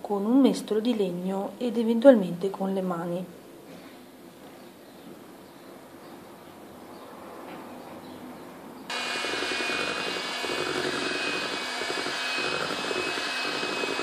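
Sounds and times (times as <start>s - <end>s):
electric hand mixer running: 8.9s - 14.0s.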